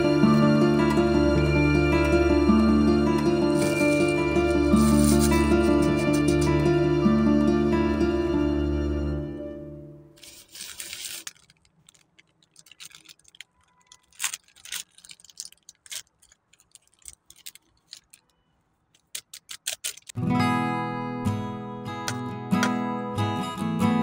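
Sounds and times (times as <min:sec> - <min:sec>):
background music: 0:00.0 - 0:10.2
plastic packets crinkling: 0:03.4 - 0:06.6, 0:10.2 - 0:20.2.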